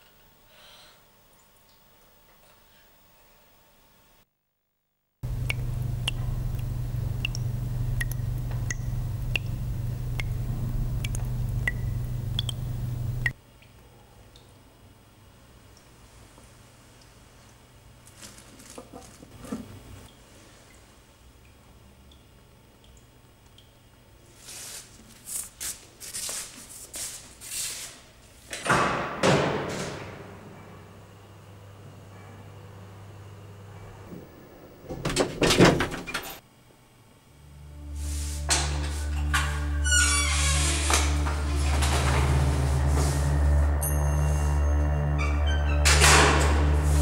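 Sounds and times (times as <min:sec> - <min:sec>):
steady low hum: 0:05.2 - 0:13.4
short hissing rustling noises: 0:37.9 - 0:39.1.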